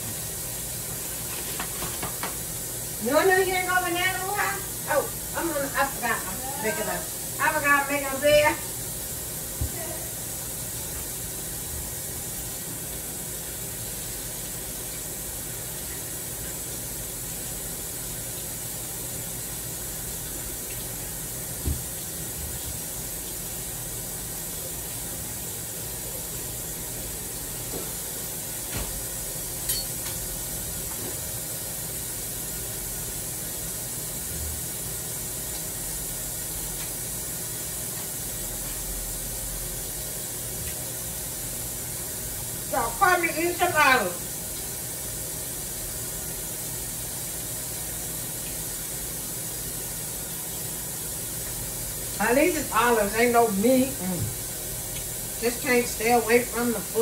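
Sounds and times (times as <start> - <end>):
tap water running into sink: 0.0 - 2.9, 10.5 - 25.9, 45.4 - 52.2.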